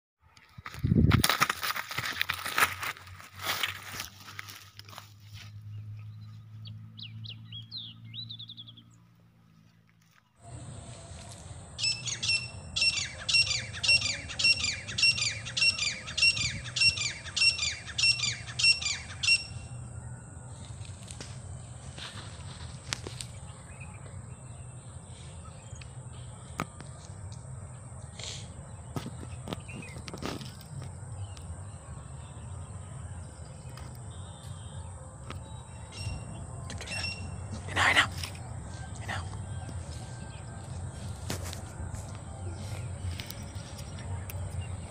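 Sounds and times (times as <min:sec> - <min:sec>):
francolin shrill calls: 0:11.8 - 0:19.7, 0:35.9 - 0:37.4.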